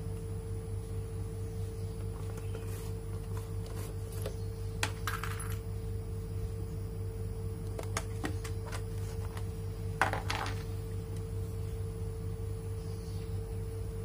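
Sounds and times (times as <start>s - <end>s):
steady hum: 0.0s - 14.0s
metal rivets clinking on a mat: 4.8s - 5.6s.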